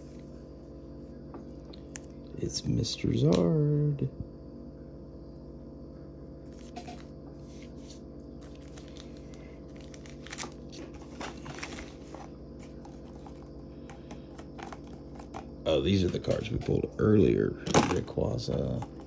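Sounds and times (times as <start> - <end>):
steady low hum: 0.0 - 19.0
trading cards rustling: 6.5 - 16.9.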